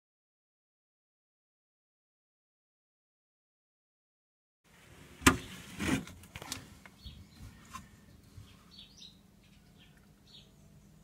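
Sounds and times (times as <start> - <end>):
rustling scrape: 4.8 - 6.8
small bird chirping: 6.9 - 11.0.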